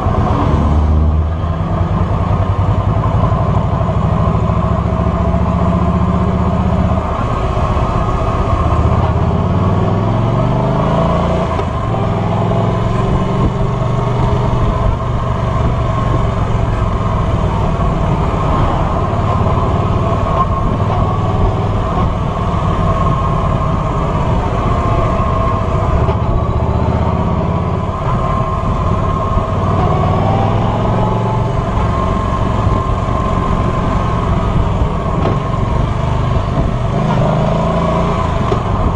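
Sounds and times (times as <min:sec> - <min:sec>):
motorcycle engine accelerating: 0:00.0 - 0:38.9.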